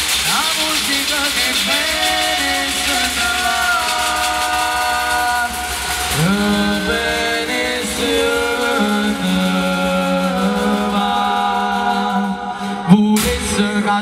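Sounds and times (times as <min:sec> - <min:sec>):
clatter of scythes and barrels: 0:00.0 - 0:12.0
chorus singing held notes: 0:00.0 - 0:13.9.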